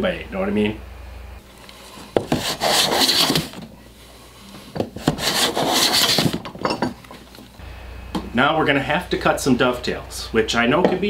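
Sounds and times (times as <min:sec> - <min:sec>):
hand plane rasping on wood: 0:02.2 - 0:03.6, 0:05.0 - 0:06.4.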